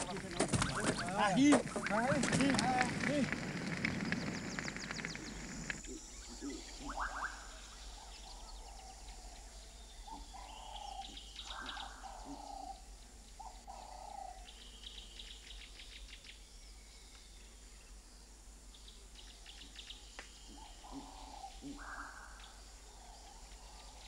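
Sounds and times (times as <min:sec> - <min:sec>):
faint rough bird calls: 0:00.0 - 0:14.6, 0:19.2 - 0:24.0.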